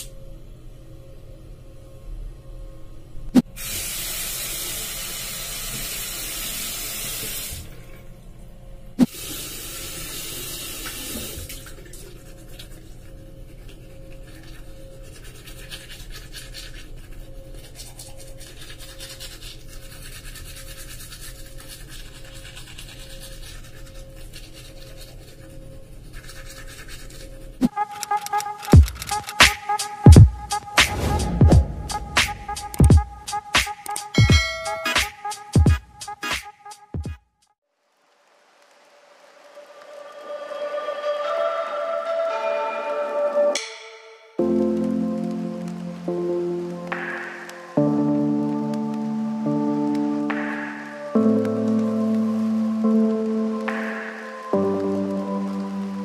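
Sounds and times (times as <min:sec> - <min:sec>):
music: 0:00.0 - 0:03.6, 0:27.6 - 0:37.6, 0:38.6 - 0:56.0
toothbrush scrubbing teeth: 0:11.8 - 0:29.1.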